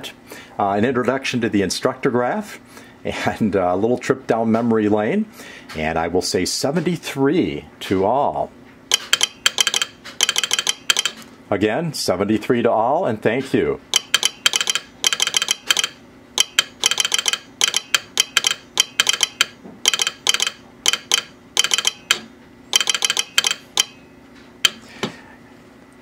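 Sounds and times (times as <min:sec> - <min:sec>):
telegraph sounder clicking morse code: 0:08.9 - 0:11.2, 0:13.9 - 0:24.0.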